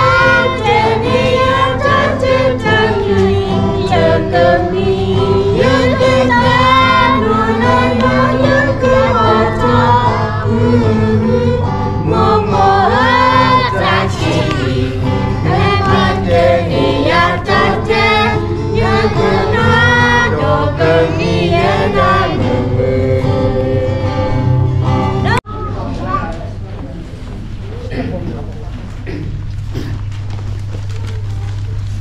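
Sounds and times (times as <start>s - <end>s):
children and women singing in chorus: 0.0s - 25.4s.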